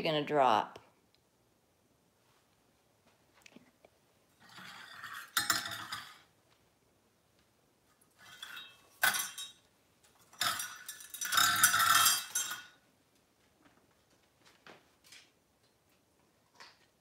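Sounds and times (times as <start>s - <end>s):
metal pots clinking and clattering: 4.4s - 6.3s, 8.1s - 9.6s, 10.2s - 12.8s.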